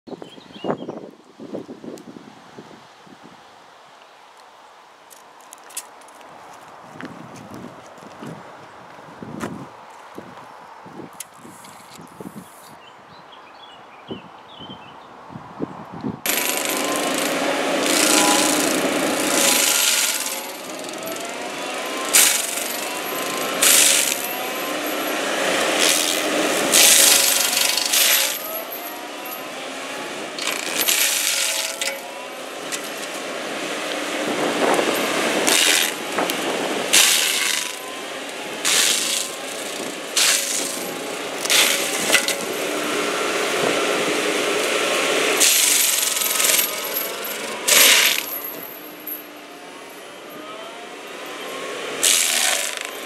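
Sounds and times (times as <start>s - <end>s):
sharp loud cracks: 16.3s - 29.4s, 30.4s - 32.0s, 35.4s - 37.8s, 38.6s - 42.6s, 45.4s - 48.5s, 52.0s - 53.0s
wood chips and stones clattering: 16.3s - 42.7s, 44.7s - 49.2s, 52.0s - 53.0s
stump grinder grinding: 16.3s - 53.0s
wavering whine: 16.3s - 53.0s.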